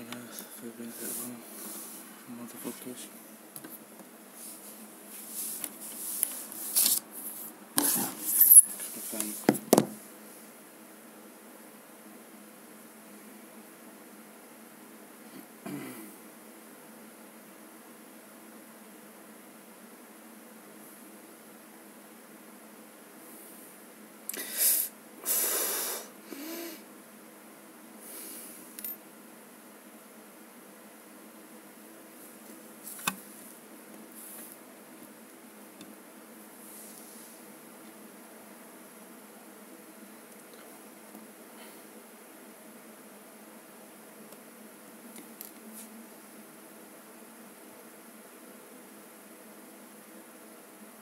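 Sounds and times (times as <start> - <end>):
sharp knocks: 9.5 - 10.0
person breathing hard: 24.3 - 26.8.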